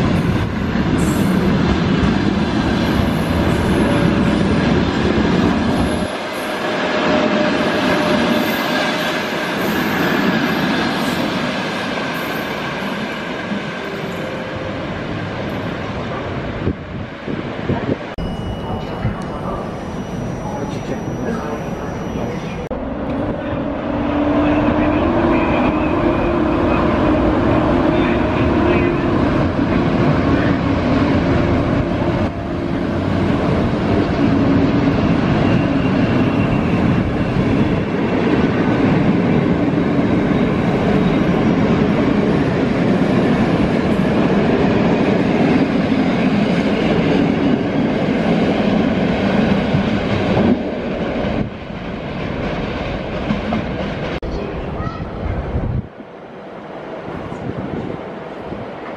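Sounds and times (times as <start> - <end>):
train wheels rattling on rails: 17.9 - 54.9.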